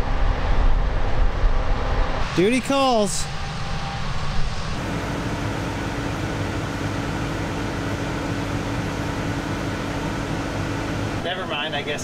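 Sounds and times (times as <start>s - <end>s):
even rushing noise: 0.0s - 6.3s
tractor engine hum: 4.4s - 12.0s.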